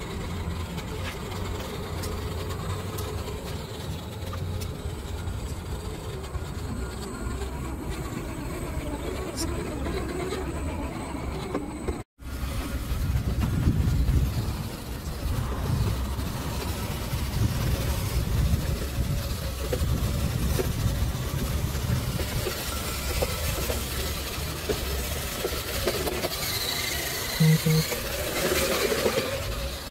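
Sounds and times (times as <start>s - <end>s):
toy car electric motor rumble: 0.0s - 29.9s
short beeps: 27.4s - 27.9s.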